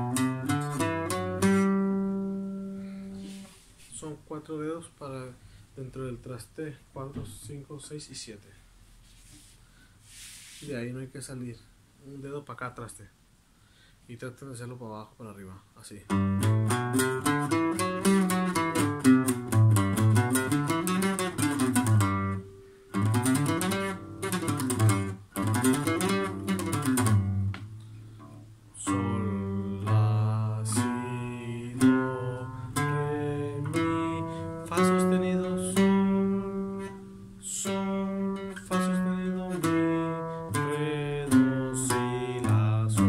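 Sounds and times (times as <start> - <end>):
acoustic guitar picking a scale: 0.0 - 4.2, 16.1 - 43.0.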